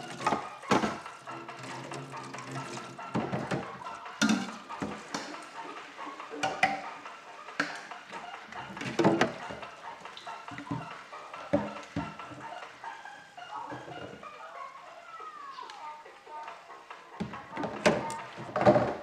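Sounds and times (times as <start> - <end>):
dishes clattering in metal sink: 0.0 - 5.4
running tap water: 0.0 - 6.8.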